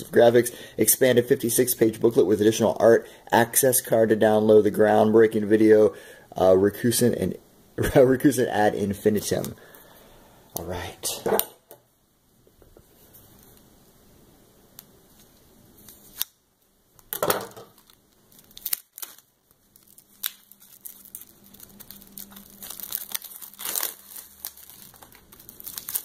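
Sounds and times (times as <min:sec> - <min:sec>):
plastic shrink-wrap crinkling: 0:17.6 - 0:26.0.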